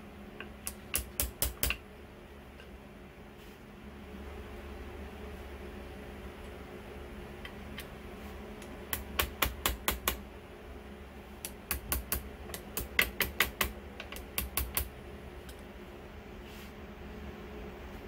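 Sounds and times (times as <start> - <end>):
low steady hum: 0.0 - 18.0
hammer tapping on metal wrench: 11.7 - 14.9.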